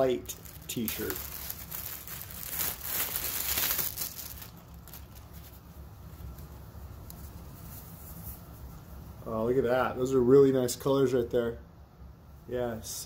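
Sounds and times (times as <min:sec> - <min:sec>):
plastic bag crinkling: 0:00.0 - 0:05.6
shirt rustling: 0:00.3 - 0:06.5.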